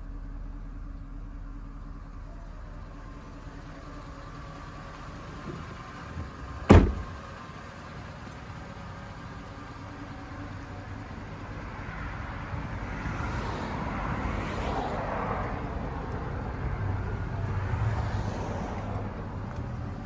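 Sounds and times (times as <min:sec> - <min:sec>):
car door slamming: 0:05.3 - 0:07.3.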